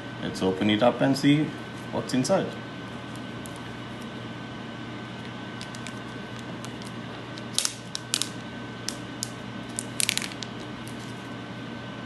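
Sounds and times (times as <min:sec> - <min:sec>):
background hum: 0:00.0 - 0:12.0
plastic sleeve crinkling: 0:05.2 - 0:11.2.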